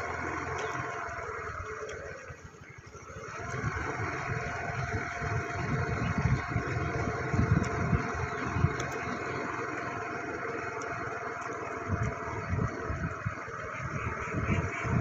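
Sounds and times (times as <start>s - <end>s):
vehicle engine running: 0.0s - 15.0s
wind buffeting microphone: 0.0s - 15.0s.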